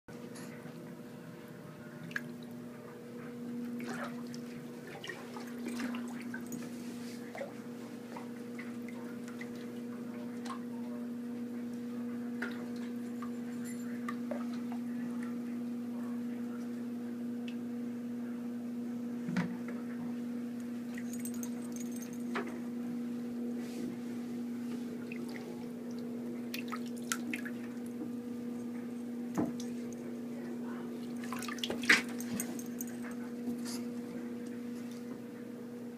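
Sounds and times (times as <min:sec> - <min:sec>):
bath water splashing: 0:03.8 - 0:09.8, 0:24.9 - 0:28.0, 0:31.0 - 0:32.9.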